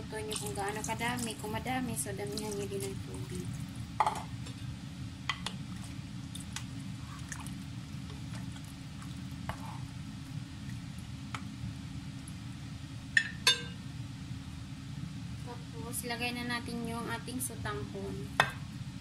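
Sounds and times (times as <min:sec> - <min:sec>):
steady low hum: 0:00.0 - 0:19.0
liquid sloshing in a pot: 0:00.2 - 0:04.6, 0:05.5 - 0:09.9.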